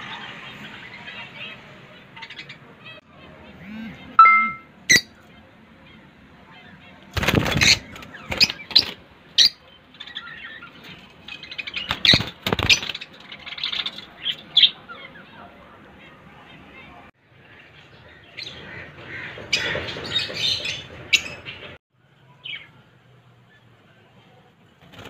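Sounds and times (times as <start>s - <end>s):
lovebirds chirping: 0.3s - 18.6s
wings fluttering and rustling: 7.1s - 9.1s, 10.6s - 14.2s, 24.8s - 25.0s.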